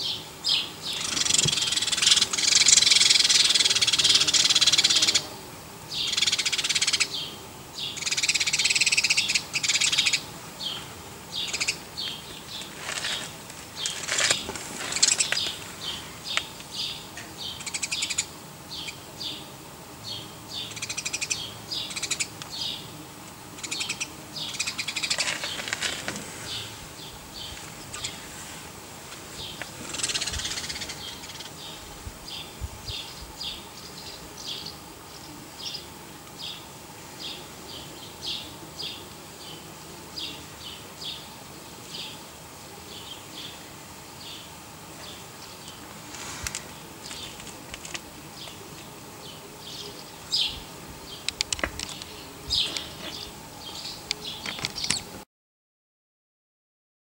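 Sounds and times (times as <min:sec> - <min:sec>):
animals chirping: 0:00.0 - 0:19.5, 0:20.1 - 0:22.9, 0:23.6 - 0:28.4, 0:29.3 - 0:41.3, 0:48.2 - 0:55.1.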